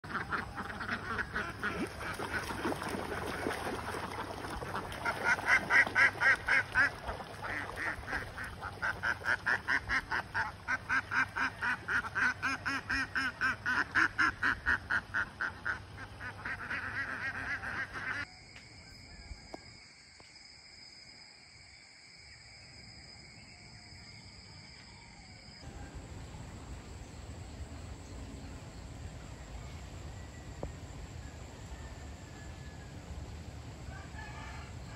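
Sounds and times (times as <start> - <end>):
ducks quacking: 0.0 - 18.3
outdoor background hiss: 25.4 - 34.9.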